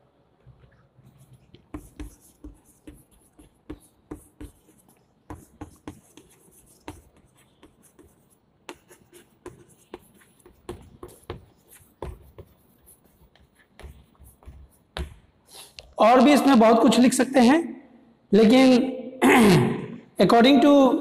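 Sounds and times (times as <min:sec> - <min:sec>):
chalk tapping and scratching on blackboard: 0:01.0 - 0:15.8.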